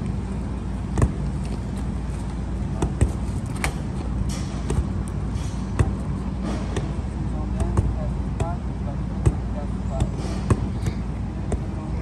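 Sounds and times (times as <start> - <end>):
crane engine running: 0.0 - 12.0
sharp metal knocks: 2.8 - 8.6.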